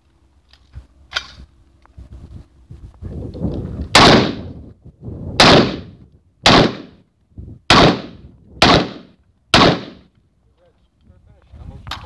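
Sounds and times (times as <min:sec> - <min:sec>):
rifle shots echoing: 0:03.9 - 0:04.6, 0:05.4 - 0:07.0, 0:07.7 - 0:10.1.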